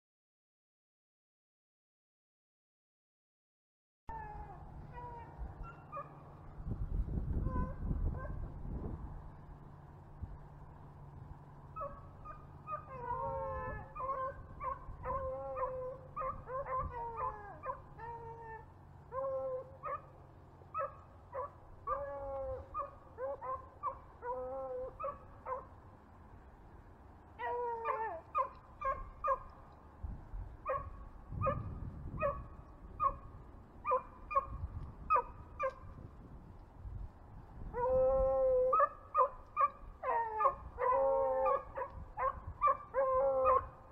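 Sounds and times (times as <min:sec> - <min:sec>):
hounds baying and howling: 0:04.1 - 0:06.5, 0:07.4 - 0:08.4, 0:11.7 - 0:25.8, 0:27.4 - 0:29.8, 0:30.6 - 0:36.0, 0:37.7 - 0:43.9.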